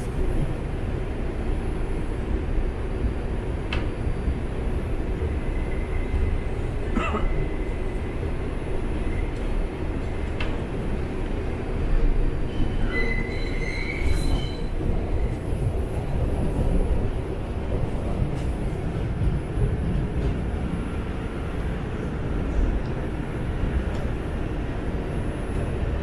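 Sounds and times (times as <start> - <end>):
subway train wheels rumbling: 0.0 - 26.0
high-pitched wheel squeal: 12.6 - 14.7.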